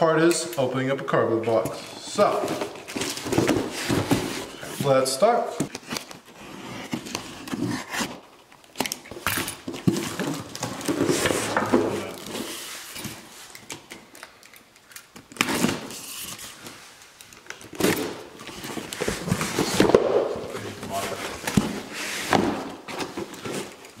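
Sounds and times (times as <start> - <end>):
cardboard rustling: 2.2 - 8.7, 9.6 - 13.5, 15.4 - 24.0.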